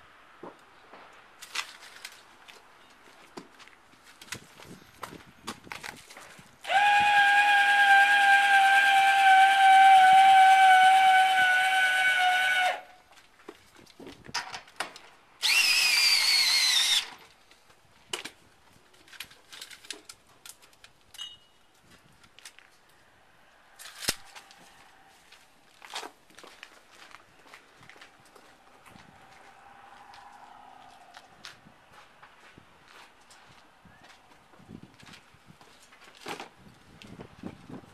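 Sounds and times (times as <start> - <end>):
cordless drill motor whine: 15.4 - 17.1.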